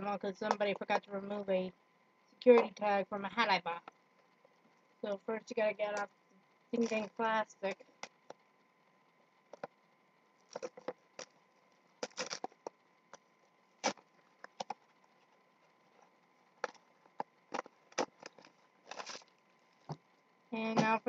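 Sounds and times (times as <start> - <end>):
plastic wrapping crinkling: 6.8 - 8.4, 9.4 - 21.0.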